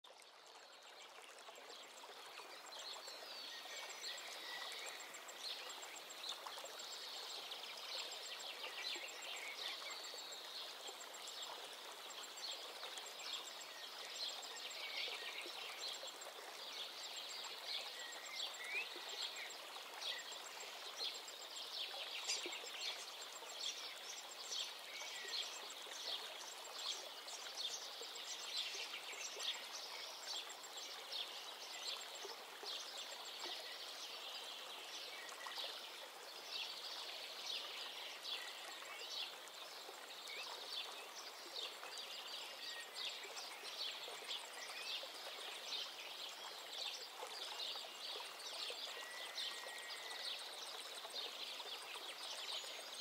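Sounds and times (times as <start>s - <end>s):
small birds chirping and singing: 1.6s - 32.1s.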